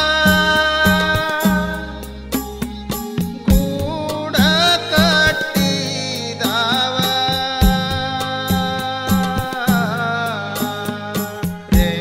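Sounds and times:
man singing: 0.0s - 2.4s, 3.4s - 12.0s
drum strokes: 0.0s - 12.0s
sustained backing tones: 0.0s - 12.0s.

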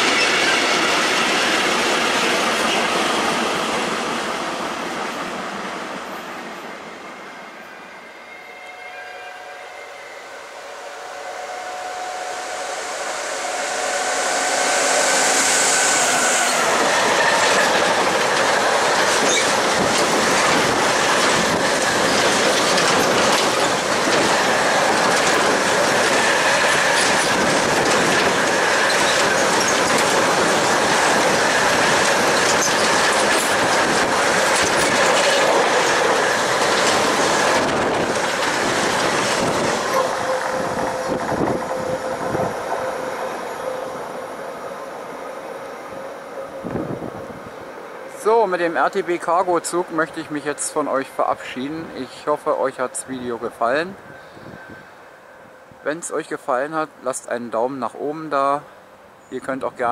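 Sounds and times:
locomotive whine: 0.0s - 57.1s
freight wagons rumbling: 16.5s - 42.6s
wheel clatter over rail joints: 16.8s - 40.0s.

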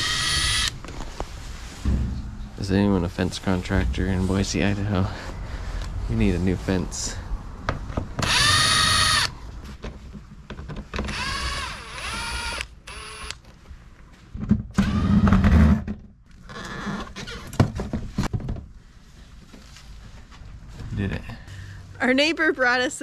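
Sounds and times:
cordless drill motor whine: 0.0s - 0.7s, 8.2s - 9.3s, 11.1s - 13.4s.

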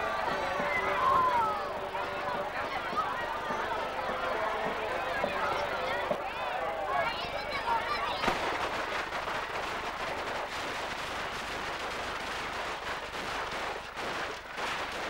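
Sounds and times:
firecrackers crackling: 7.1s - 15.0s.

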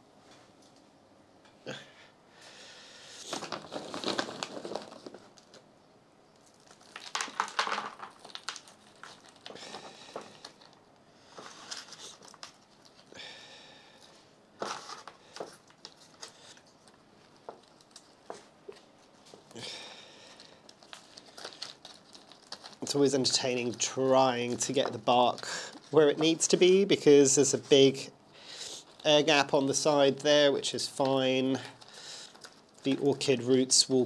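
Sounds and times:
plastic pot crinkling: 3.2s - 5.7s, 6.4s - 13.2s, 14.6s - 19.5s, 20.2s - 28.0s, 28.8s - 33.8s.

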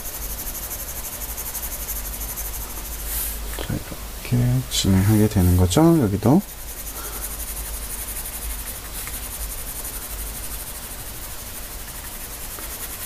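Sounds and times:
pencil scratching on paper: 4.9s - 13.0s.

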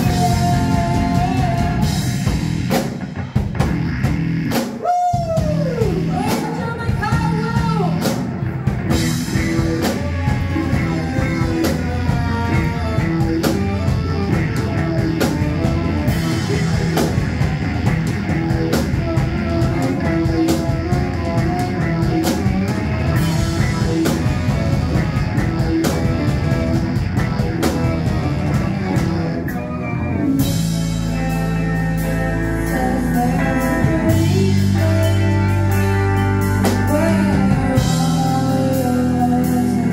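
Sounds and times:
bass guitar: 0.0s - 39.9s
drum kit: 0.0s - 39.9s
electric guitar: 0.0s - 39.9s
saxophone: 8.9s - 30.6s.

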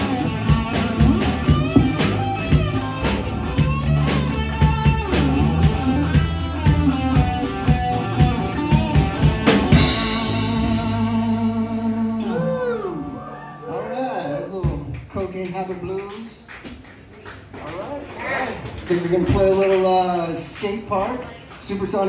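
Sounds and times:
rock band playing: 0.0s - 13.8s.

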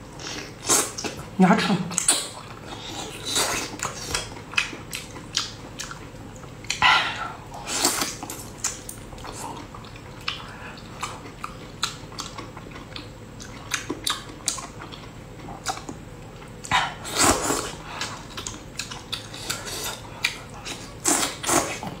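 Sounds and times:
wet chewing and lip-smacking: 1.9s - 6.9s, 7.8s - 22.0s
slurping: 17.0s - 18.2s.

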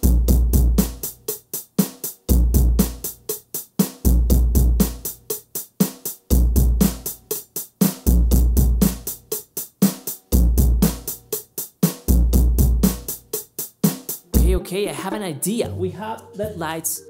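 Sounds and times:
hi-hat strokes: 0.0s - 14.7s
electronic drum groove: 0.0s - 17.0s
kick drum thumps: 8.1s - 9.2s, 10.3s - 11.2s, 12.1s - 13.3s, 14.4s - 14.6s.

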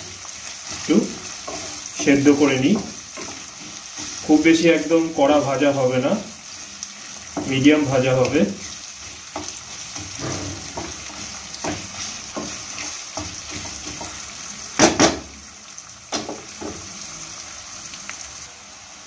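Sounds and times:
onions sizzling in hot oil: 0.0s - 19.0s
wooden spatula scraping pan: 0.5s - 14.4s.

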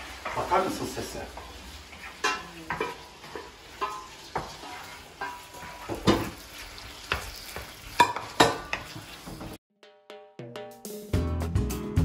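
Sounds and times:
chicken sizzling in frying pan: 0.0s - 9.6s
wooden spoon scraping a pan: 0.0s - 9.6s.

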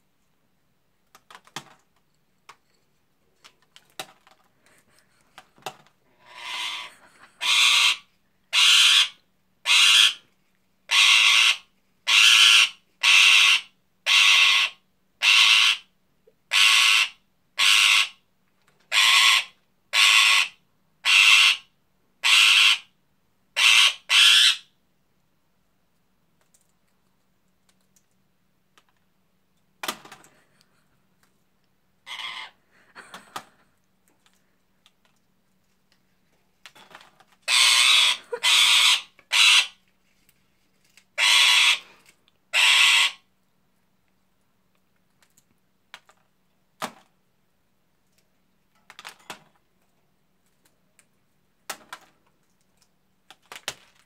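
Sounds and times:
parakeet squawking: 6.3s - 10.2s, 10.9s - 15.9s, 18.9s - 22.9s, 23.6s - 24.7s, 32.0s - 32.6s, 37.5s - 39.8s, 41.2s - 41.9s, 42.5s - 43.2s.

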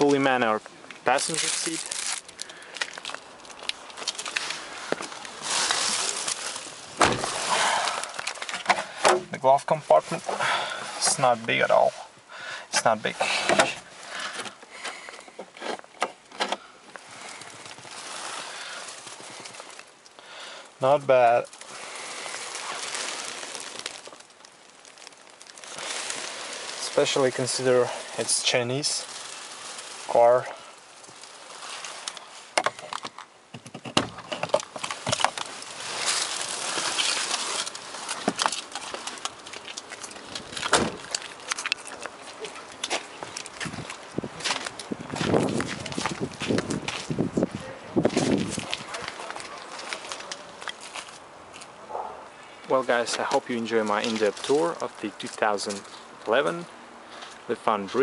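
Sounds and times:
rustling of person climbing out: 0.0s - 12.1s, 12.8s - 20.2s, 20.8s - 51.8s
soft steady hiss: 0.0s - 58.0s
loud thump: 7.0s - 7.4s.

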